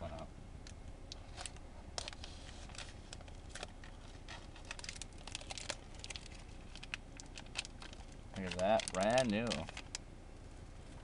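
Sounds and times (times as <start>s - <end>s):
plastic bag tearing and crinkling: 1.4s - 10.0s.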